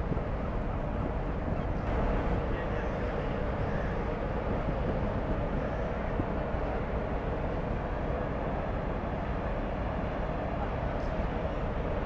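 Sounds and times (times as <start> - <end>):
wind noise on microphone: 0.0 - 8.7
ship engine rumble: 0.0 - 12.0.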